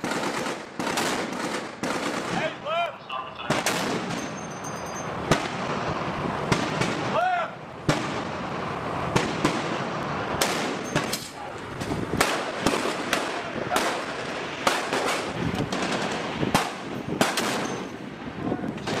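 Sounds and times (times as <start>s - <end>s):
rifle shots with echo: 0.0s - 2.6s, 3.4s - 4.2s, 5.3s - 7.2s, 9.1s - 11.4s, 12.2s - 17.9s.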